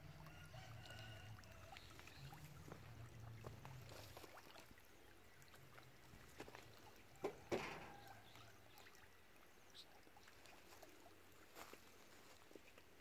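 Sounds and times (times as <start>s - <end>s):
fish splashing: 0.0s - 9.2s.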